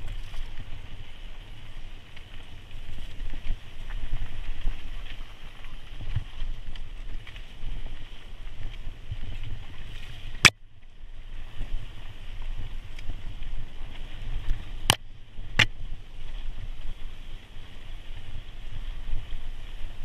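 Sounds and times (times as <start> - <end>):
bike rattling on trail: 0.0 - 20.0
wind rumble on microphone: 0.0 - 20.0.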